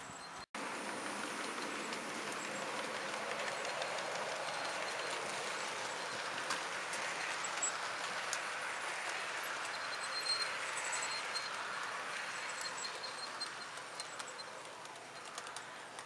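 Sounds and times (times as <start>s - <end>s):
model train wheels on rail: 0.0s - 16.0s
clicks at rail joints: 0.7s - 16.0s.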